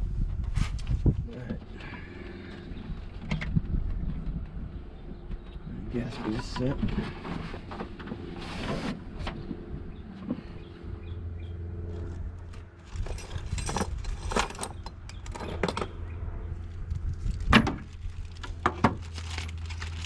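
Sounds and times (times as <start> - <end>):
low hum: 0.0 - 20.0
metal tools clinking: 12.9 - 16.0.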